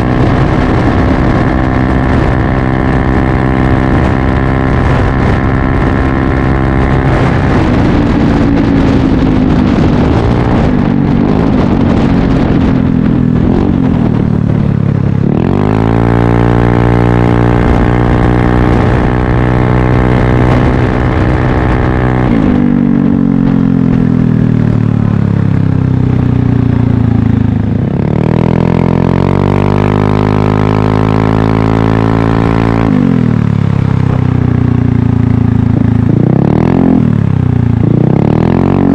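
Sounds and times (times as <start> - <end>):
scooter engine revving: 0.0 - 14.0.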